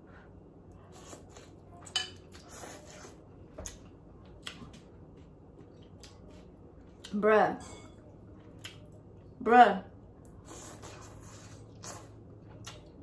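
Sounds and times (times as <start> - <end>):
slurping and chewing noodles: 10.3 - 12.9.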